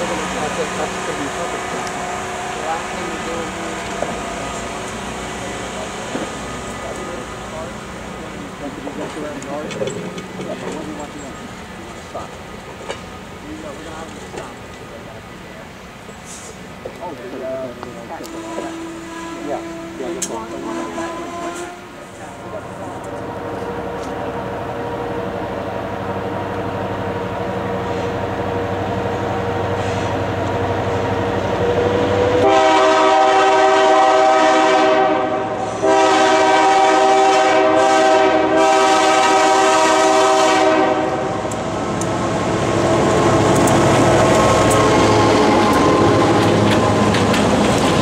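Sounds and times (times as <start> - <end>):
diesel locomotive engine approaching: 0.0 - 48.0
train air horn blasts: 18.2 - 22.0, 32.2 - 41.5.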